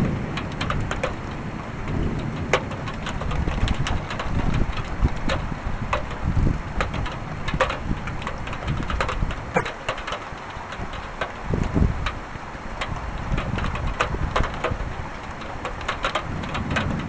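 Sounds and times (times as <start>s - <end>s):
thunder rumbling: 0.0s - 9.6s, 13.2s - 17.0s
raindrops ticking: 0.0s - 17.0s.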